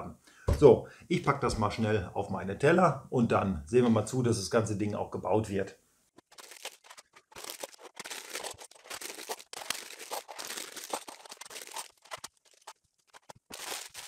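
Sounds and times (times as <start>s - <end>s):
plastic bags crinkling and tearing: 6.2s - 14.0s.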